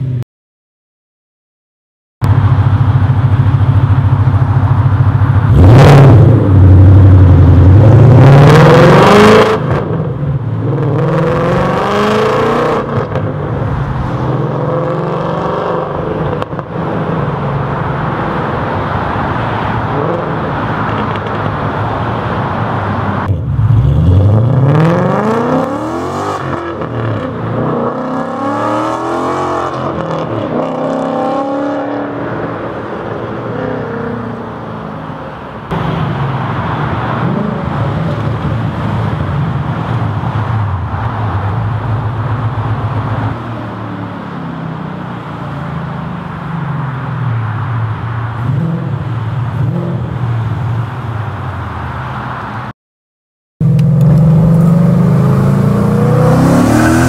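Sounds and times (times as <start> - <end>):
car exhaust accelerating: 53.6 - 57.0.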